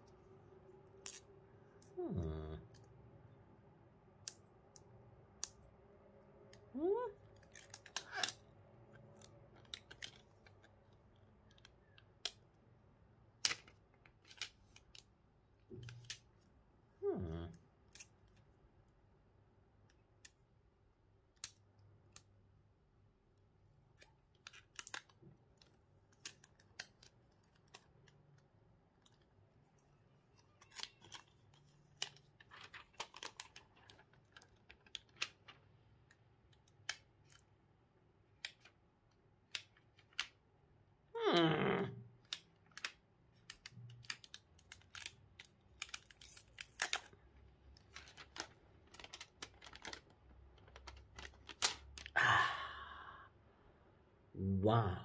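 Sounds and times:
plastic wrap crinkling: 42.7s - 52.2s.

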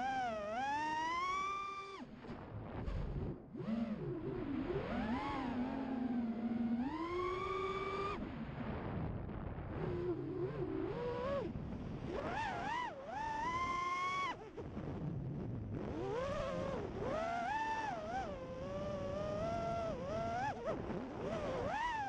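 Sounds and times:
quadcopter motors whining: 0.0s - 2.2s, 3.6s - 8.2s, 10.2s - 11.5s, 12.1s - 14.6s, 15.9s - 22.0s.

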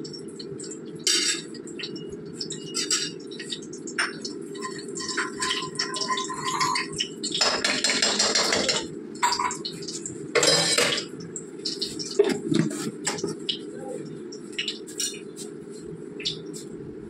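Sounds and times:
metal spoon scraping a pan: 2.5s - 9.6s, 10.4s - 11.1s.

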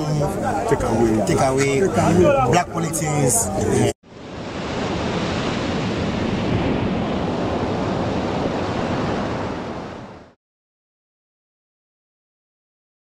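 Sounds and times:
sea surf: 0.0s - 10.4s
wind: 0.0s - 10.4s.

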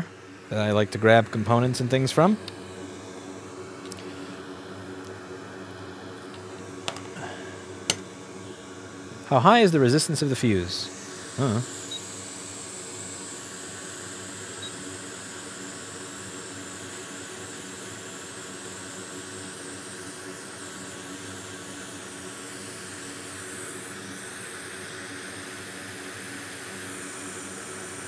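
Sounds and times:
fan air hiss: 0.0s - 28.0s
low electrical hum: 0.0s - 28.0s.

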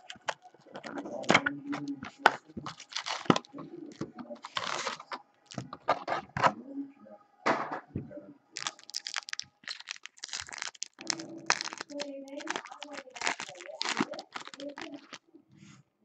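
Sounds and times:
foil card packs crinkling: 0.0s - 5.8s, 8.6s - 15.2s.

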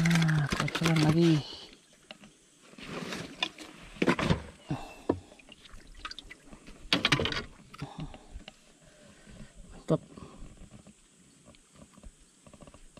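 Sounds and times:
water splashing and sloshing: 2.8s - 8.4s.

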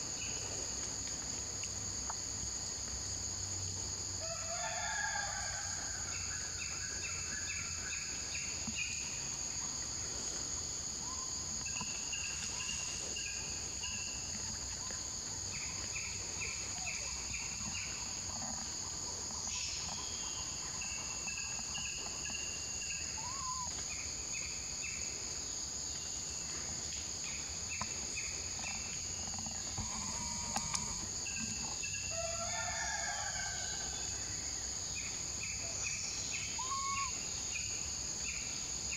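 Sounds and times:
insects droning: 0.0s - 38.9s
rooster crowing: 4.2s - 6.2s, 32.1s - 34.2s.

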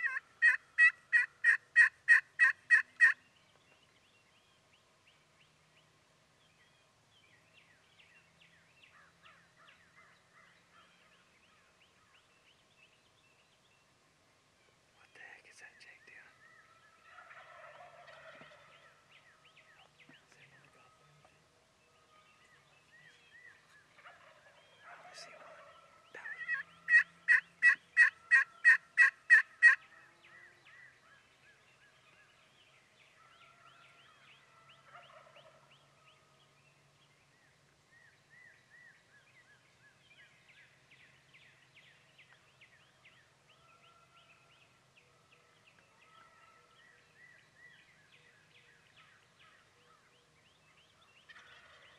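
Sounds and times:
turkey calls: 0.0s - 3.2s, 16.3s - 21.3s, 23.2s - 30.5s, 33.2s - 35.8s, 45.1s - 46.8s, 51.2s - 51.9s
songbirds chirping faintly: 0.0s - 51.9s.

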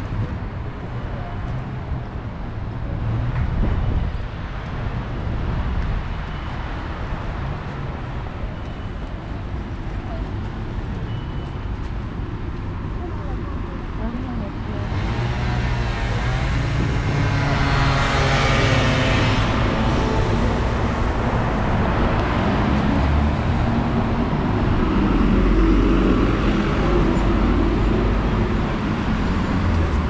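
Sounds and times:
heavy vehicle rumble: 0.0s - 30.0s
cars passing on wet roads: 14.6s - 30.0s.

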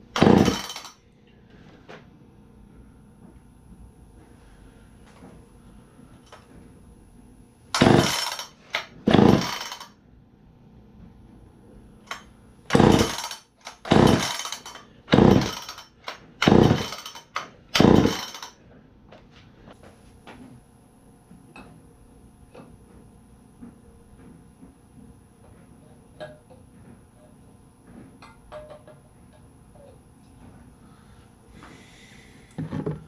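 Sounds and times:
engine turning over: 0.0s - 0.9s, 7.8s - 9.9s, 12.7s - 18.5s
chainsaw recoil starter pulls: 0.2s - 0.9s, 7.8s - 9.9s, 12.7s - 18.5s.

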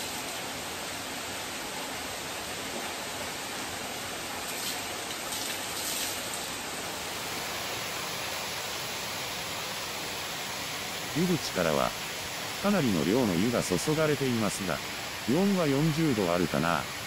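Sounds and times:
waterfall rushing: 6.8s - 17.0s.

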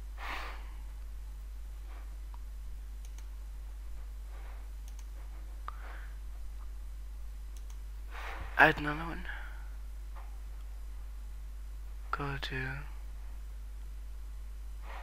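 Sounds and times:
low electrical hum: 0.0s - 15.0s
faint mouse clicks: 2.3s - 3.4s, 4.8s - 5.8s, 7.5s - 7.8s.

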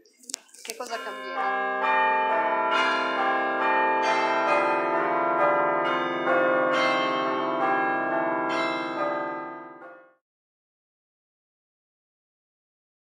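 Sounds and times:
bells ringing a slow melody: 0.8s - 10.2s.

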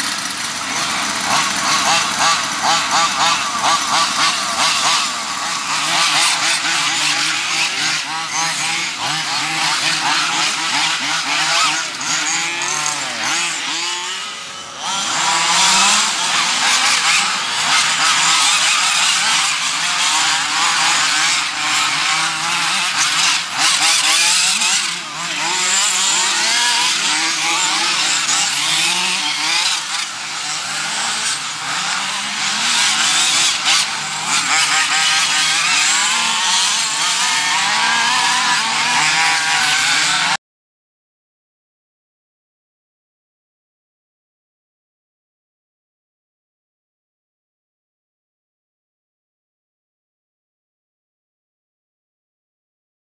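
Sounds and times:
rc buggy engines revving: 0.0s - 40.4s.

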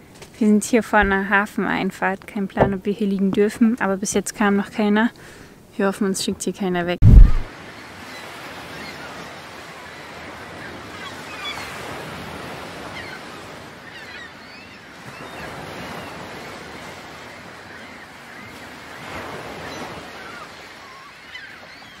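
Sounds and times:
ocean waves breaking: 0.9s - 1.5s, 7.0s - 22.0s.

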